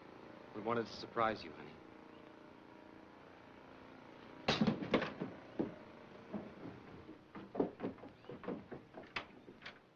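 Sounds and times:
footsteps on wooden boards: 4.6 - 9.9.

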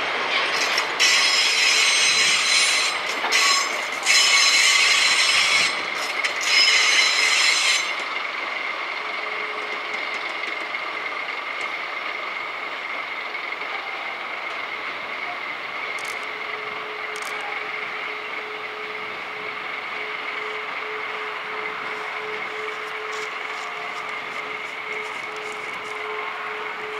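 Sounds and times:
train rolling grind: 0.0 - 26.9
train wheels squealing: 0.3 - 8.2.

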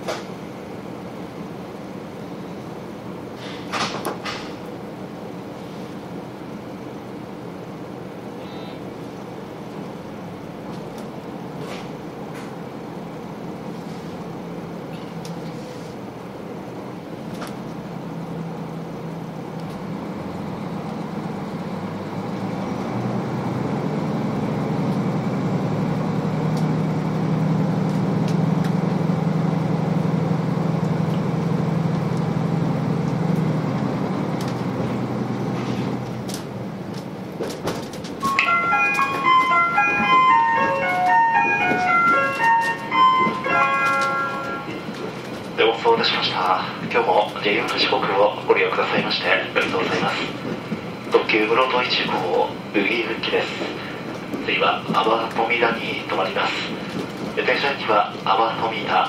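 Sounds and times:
diesel railcar engine drone: 0.0 - 59.0
onboard chime melody: 38.2 - 44.7.

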